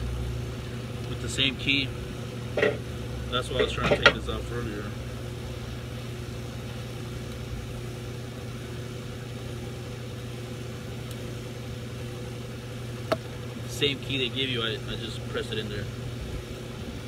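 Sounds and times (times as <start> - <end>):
machinery humming: 0.0 - 17.0.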